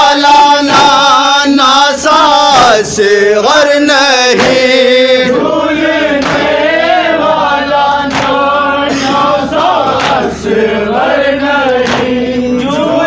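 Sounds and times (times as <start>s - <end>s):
men chanting into a microphone: 0.0s - 13.0s
hands slapping chest: 6.2s - 6.6s, 8.1s - 8.4s.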